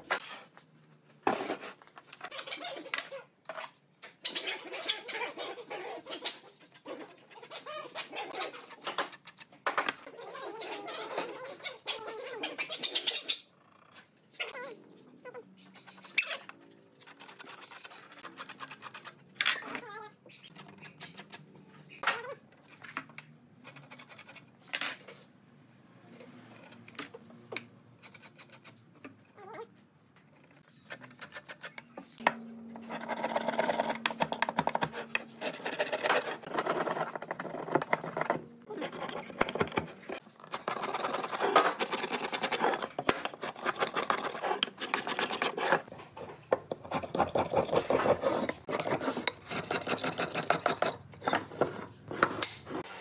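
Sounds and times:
wood rasping by hand: 32.8 - 45.9, 46.7 - 53.0.

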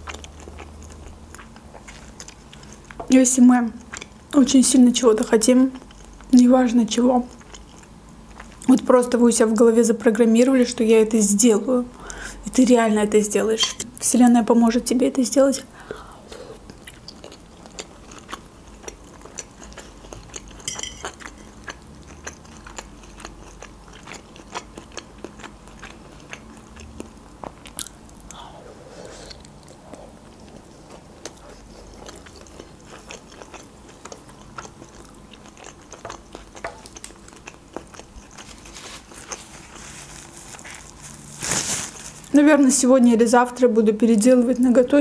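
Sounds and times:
person chewing: 0.0 - 3.1, 3.8 - 4.2, 7.3 - 8.8, 15.9 - 41.6.

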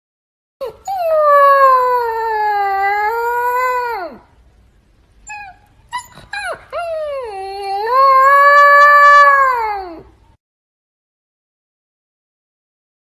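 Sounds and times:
puppy howling: 0.6 - 4.3, 5.3 - 10.1.

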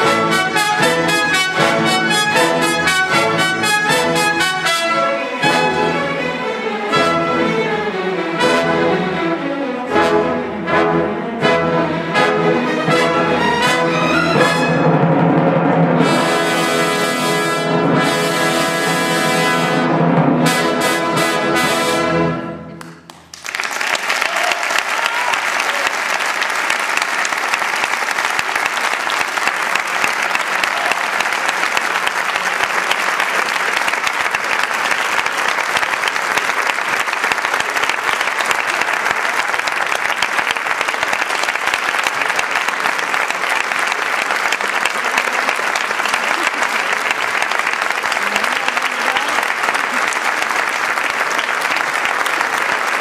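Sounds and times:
audience applauding: 22.8 - 53.0.

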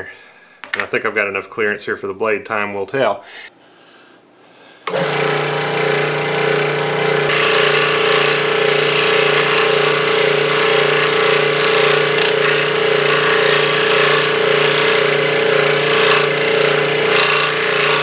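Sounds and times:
scroll saw cutting wood: 4.9 - 18.0.

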